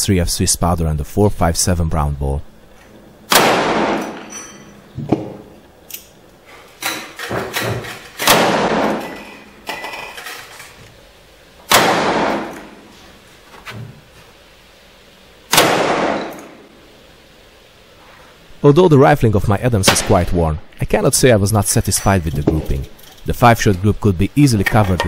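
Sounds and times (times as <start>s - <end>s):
revolver shots echoing: 3.3s - 4.3s, 8.2s - 9.2s, 11.7s - 12.8s, 15.5s - 16.7s.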